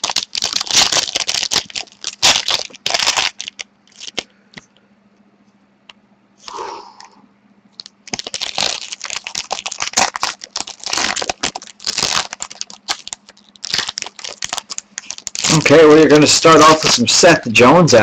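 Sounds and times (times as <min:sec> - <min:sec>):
foil wrapper crinkling and tearing: 0:00.0 - 0:04.3, 0:07.8 - 0:17.2.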